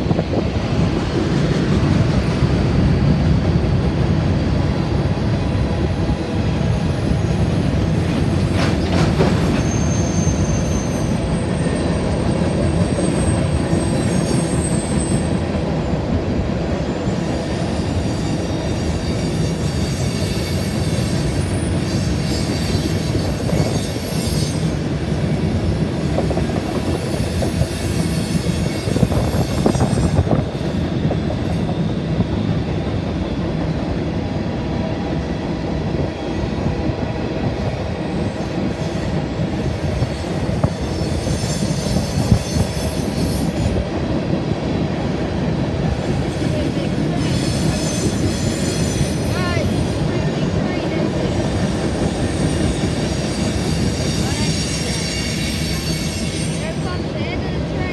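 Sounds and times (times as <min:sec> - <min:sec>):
freight train wheels rumbling on bridge: 0:00.0 - 0:57.9
wheel squeal: 0:08.2 - 0:15.4, 0:17.0 - 0:24.8, 0:26.8 - 0:30.8, 0:40.1 - 0:43.8, 0:47.2 - 0:49.5, 0:51.5 - 0:56.8.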